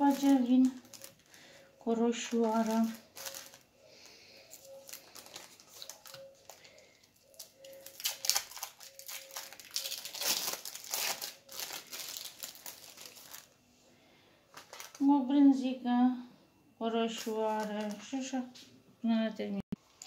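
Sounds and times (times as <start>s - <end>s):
plastic packaging crinkling: 0.0s - 13.6s, 14.5s - 15.1s, 17.1s - 18.3s.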